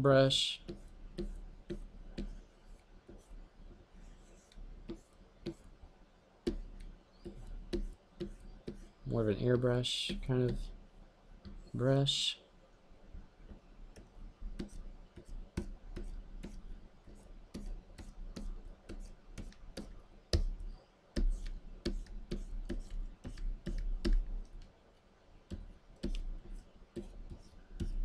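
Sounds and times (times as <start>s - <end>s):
stylus tapping on screen: 0.6s - 2.4s, 4.5s - 5.7s, 6.4s - 9.0s, 10.0s - 10.7s, 13.4s - 24.7s, 25.5s - 28.0s.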